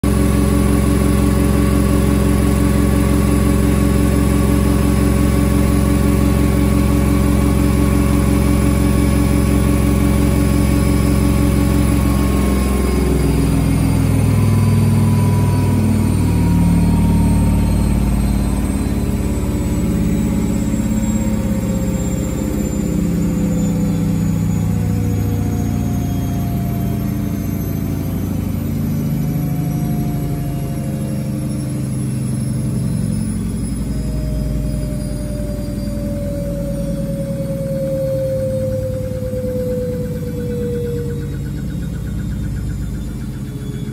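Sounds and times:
washing machine spinning: 0:00.0 - 0:43.9.

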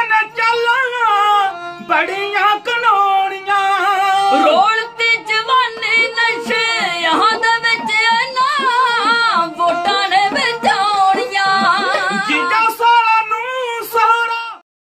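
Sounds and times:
bowed string instrument: 0:00.0 - 0:14.3
men singing ornamented melody: 0:00.1 - 0:14.0
small hand drums: 0:04.1 - 0:13.4.

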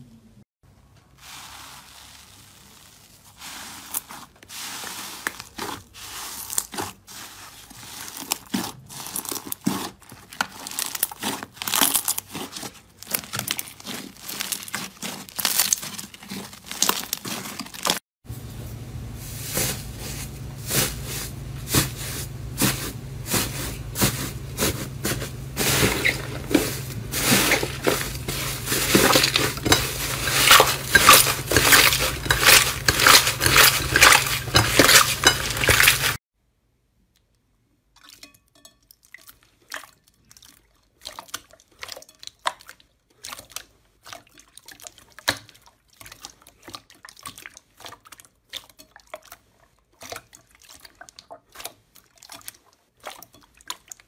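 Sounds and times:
crunchy slime crackling: 0:01.2 - 0:18.0, 0:22.6 - 0:36.2
steady low hum: 0:18.3 - 0:36.2.

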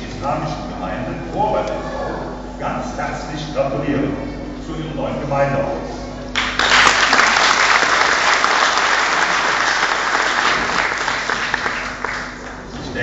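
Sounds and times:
audience applauding: 0:06.3 - 0:12.7.

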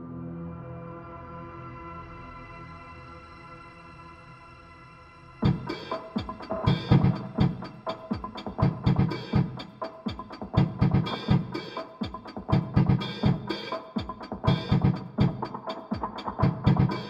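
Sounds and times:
drum machine beat: 0:05.4 - 0:17.0.

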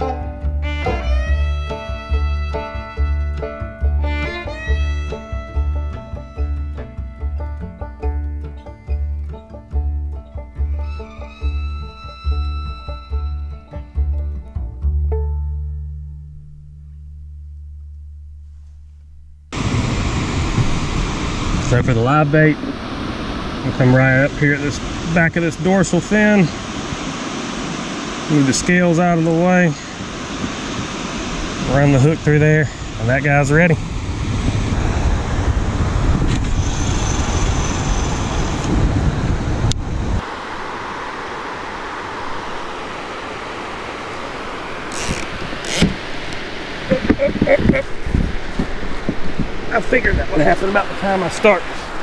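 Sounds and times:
background music low note: 0:00.0 - 0:19.6
wind rumble on microphone: 0:19.2 - 0:52.0
steady rushing background noise: 0:19.5 - 0:52.0
steady hiss: 0:19.6 - 0:34.0, 0:40.1 - 0:52.0
camera handling noise: 0:44.9 - 0:46.0.

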